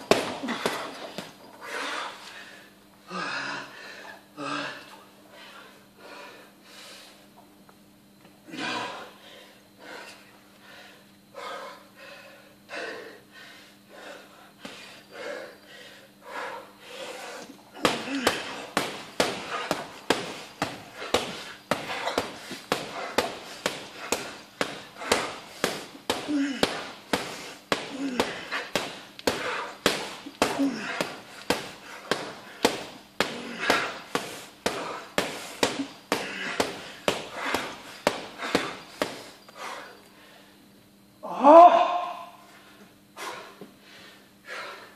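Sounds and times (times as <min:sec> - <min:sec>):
boxing gloves punching heavy bag: 0:00.0 - 0:01.4, 0:17.7 - 0:39.3.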